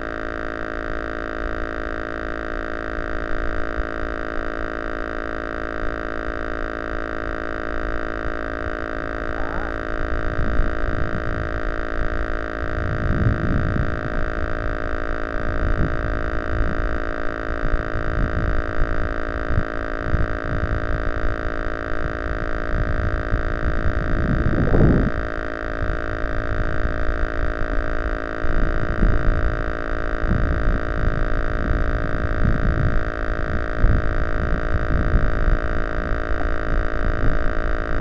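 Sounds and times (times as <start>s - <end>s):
steady electrical whine: 0.0s - 38.0s
wind buffeting microphone: 9.2s - 17.0s, 17.6s - 21.3s, 22.0s - 27.8s, 28.4s - 38.0s.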